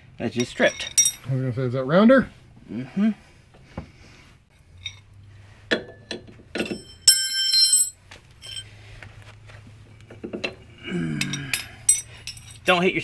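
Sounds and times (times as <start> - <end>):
wrench clinking on nut: 0.3 - 1.2, 5.7 - 8.7, 11.2 - 12.7
wrench striking metal ringing: 6.6 - 8.6.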